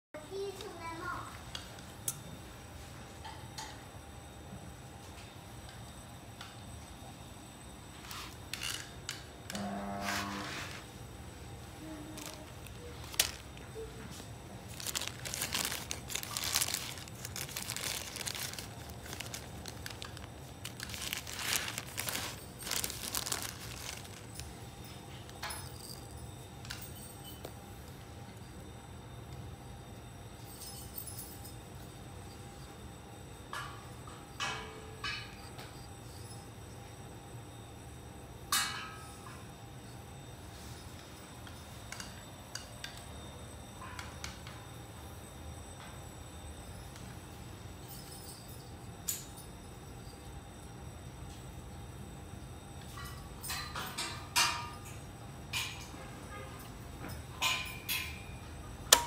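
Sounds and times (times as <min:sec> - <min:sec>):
plastic bag crinkling: 0:12.0 - 0:13.8, 0:14.5 - 0:24.6.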